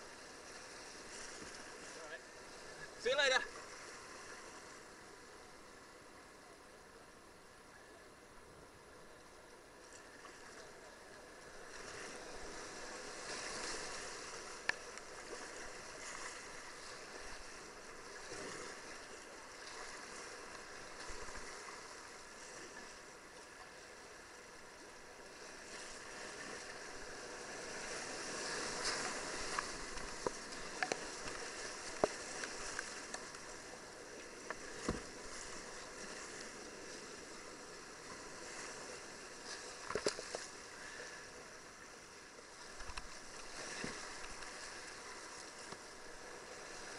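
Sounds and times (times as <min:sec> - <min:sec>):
rushing white water: 0:00.0 - 0:04.8
boat and paddle knocks and splashes: 0:27.8 - 0:33.6, 0:34.4 - 0:36.1, 0:39.5 - 0:40.5.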